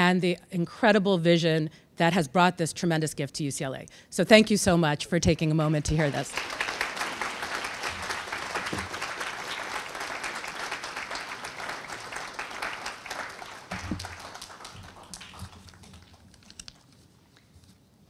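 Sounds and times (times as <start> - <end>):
audience applauding: 5.9 - 16.6.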